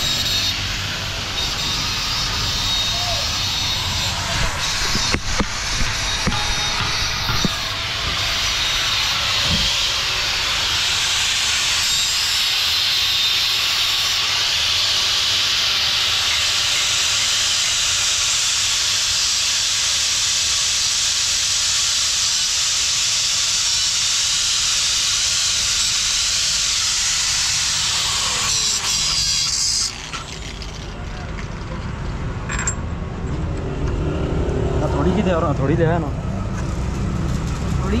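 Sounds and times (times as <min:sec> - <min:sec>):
compressed air blow gun hissing: 0:04.6 - 0:30.4.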